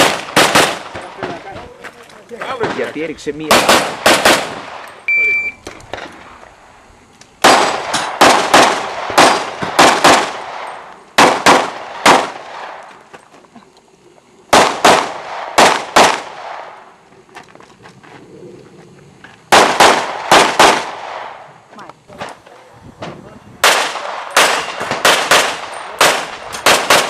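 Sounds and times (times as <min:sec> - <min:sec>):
pistol shots echoing: 0:00.0 - 0:01.4, 0:03.4 - 0:05.0, 0:07.4 - 0:12.8, 0:14.5 - 0:16.8, 0:19.5 - 0:21.4, 0:23.6 - 0:27.0.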